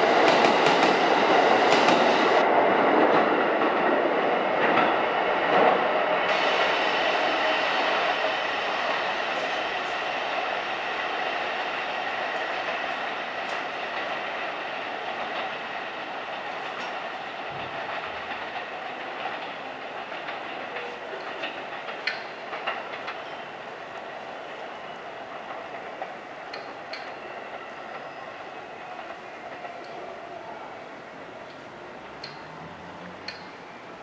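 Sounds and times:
subway train rolling: 0.0s - 34.0s
wheels clicking over rail joints: 12.5s - 30.2s.

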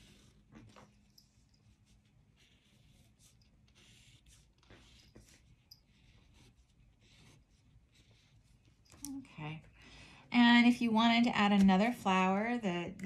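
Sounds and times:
marker scratching on paper: 0.0s - 8.9s.

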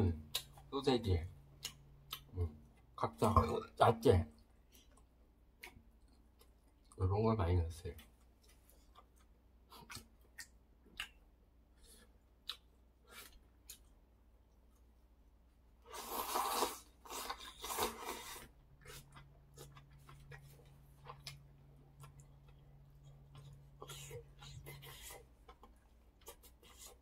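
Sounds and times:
loud broth slurp: 15.9s - 18.4s
low steady hum: 17.0s - 27.0s.

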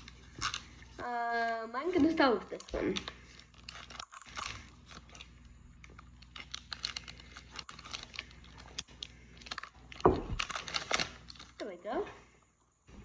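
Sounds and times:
card pack wrapper crinkling and tearing: 0.0s - 1.0s, 2.5s - 11.6s.

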